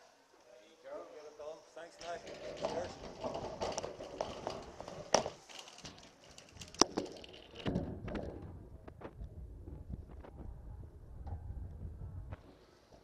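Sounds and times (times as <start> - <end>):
shopping trolley rattling: 2.0 - 7.8
low rumble: 7.9 - 12.4.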